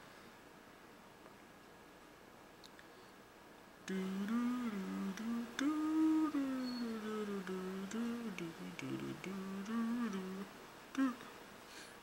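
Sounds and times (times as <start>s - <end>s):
person humming: 3.9s - 11.4s.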